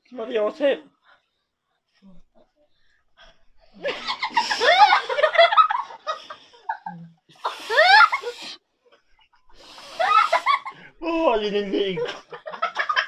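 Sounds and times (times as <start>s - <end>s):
people laughing loudly: 3.8s - 8.4s, 10.0s - 10.9s, 11.6s - 13.0s.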